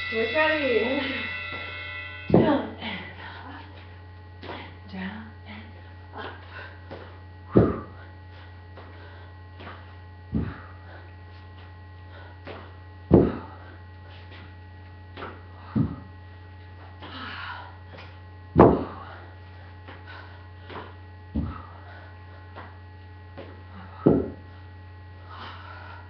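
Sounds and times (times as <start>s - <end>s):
electrical mains hum: 0.0s - 26.0s
feet thudding on floor: 6.9s - 8.0s, 9.6s - 10.7s, 12.5s - 13.6s, 15.1s - 16.1s, 18.6s - 19.0s, 20.6s - 21.7s, 23.4s - 24.4s.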